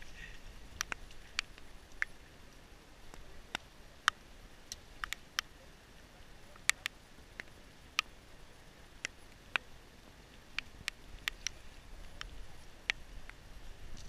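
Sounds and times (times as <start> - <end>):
faint steady hiss: 0.0 - 14.0
sharp ticks: 0.8 - 2.2, 3.1 - 5.5, 6.5 - 8.2, 10.5 - 13.4.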